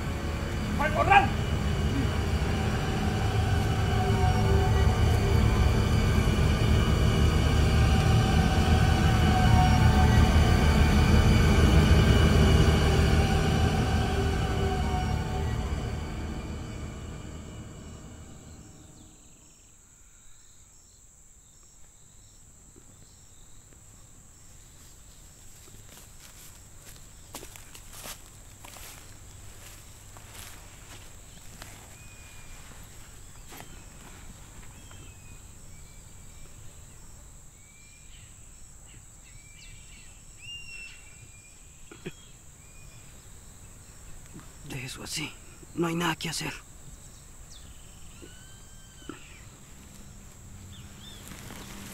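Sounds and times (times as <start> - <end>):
film score music: 0.0 - 19.6, 39.7 - 51.9
low rumble: 0.0 - 19.6
insects buzzing drone: 0.0 - 51.9
whistled bird chirps: 31.7 - 43.3, 47.1 - 51.9.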